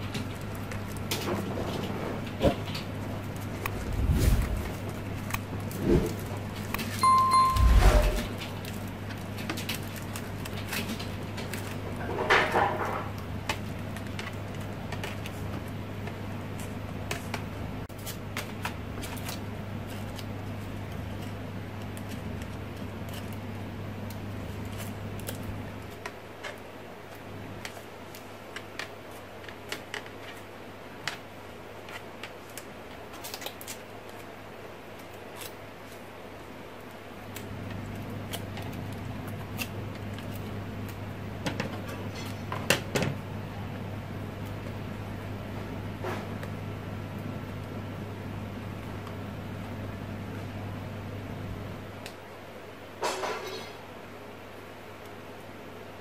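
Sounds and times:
low steady hum: 0.0 - 8.9
short electronic ding: 7.0 - 8.3
crepe paper crinkling: 13.0 - 41.1.

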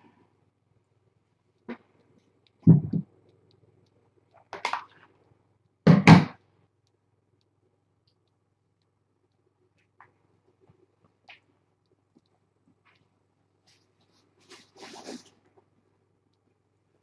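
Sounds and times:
dull knocks and thumps: 2.6 - 3.1.

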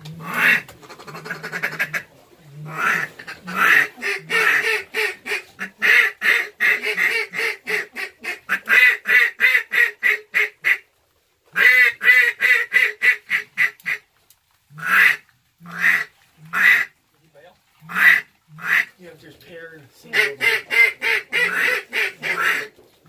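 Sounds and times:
duck call quacks: 0.2 - 2.0, 2.7 - 10.8, 11.6 - 14.0, 14.8 - 16.9, 17.9 - 18.9, 20.1 - 22.7.

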